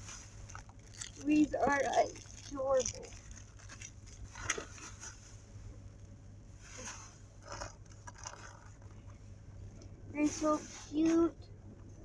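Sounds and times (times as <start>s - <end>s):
steady low hum: 0.0s - 12.0s
plastic toys rustling and clicking: 0.4s - 5.2s, 7.4s - 9.1s.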